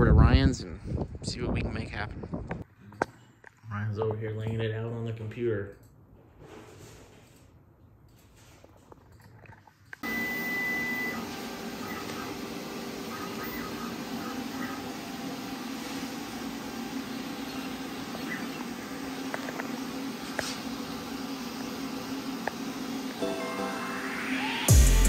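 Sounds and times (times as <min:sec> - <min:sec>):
high beep: 0:10.0 - 0:11.2
plasma torch hissing and humming: 0:10.0 - 0:25.0.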